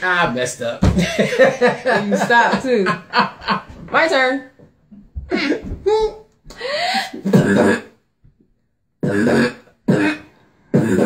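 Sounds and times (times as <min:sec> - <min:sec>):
woman beatboxing: 0:09.0 - 0:11.0.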